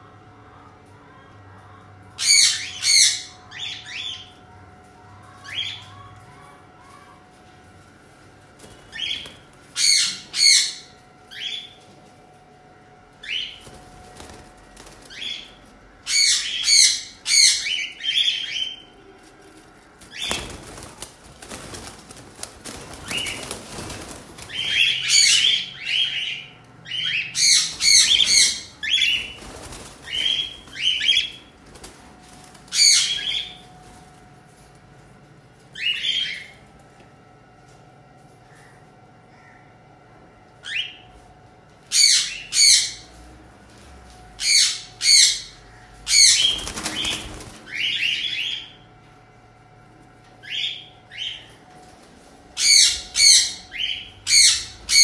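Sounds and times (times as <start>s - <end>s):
wings flapping in cage: 13.5s - 15.6s, 19.2s - 25.6s, 27.6s - 33.5s, 46.3s - 47.9s.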